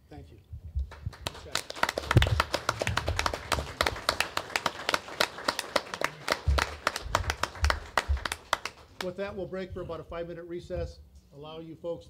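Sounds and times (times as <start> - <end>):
small group applauding: 0.8 - 9.2.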